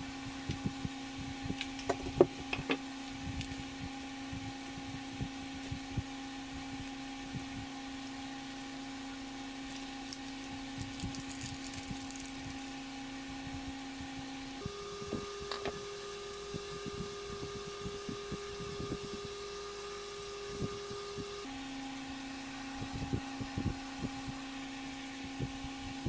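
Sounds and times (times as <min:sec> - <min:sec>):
steady two-tone hum: 0:00.0 - 0:26.0
plastic bag crinkling: 0:09.5 - 0:12.8.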